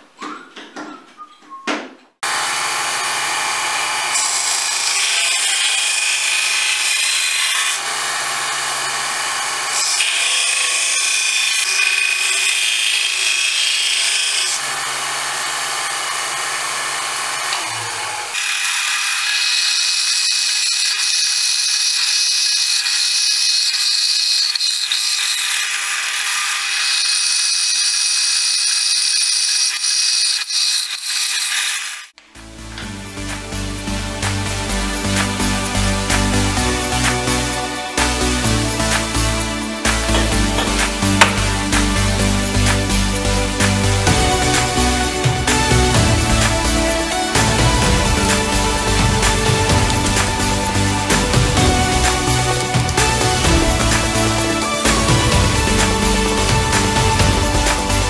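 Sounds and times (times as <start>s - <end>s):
motor hum: 2.2s - 6.5s, 43.7s - 58.0s
drill press boring steel: 2.2s - 32.2s, 39.9s - 41.6s
power saw cutting steel: 2.2s - 33.5s, 34.2s - 58.0s.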